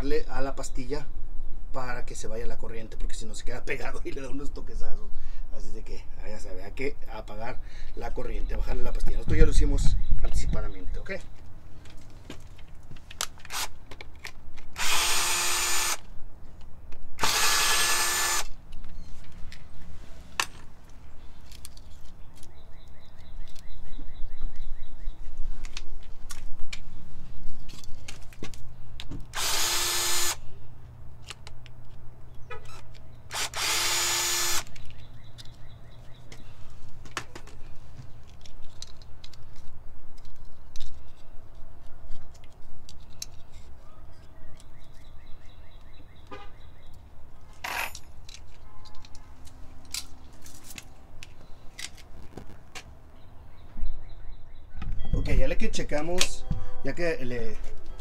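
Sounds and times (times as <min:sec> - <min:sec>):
cordless drill running: 0:14.8 - 0:16.0, 0:17.2 - 0:18.6, 0:29.3 - 0:30.4, 0:33.3 - 0:34.7.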